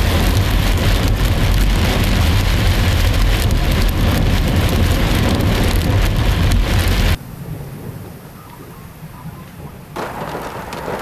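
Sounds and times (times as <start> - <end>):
heavy rain on car roof: 0.0 - 7.6, 9.8 - 11.0
deep rumble: 0.0 - 11.0.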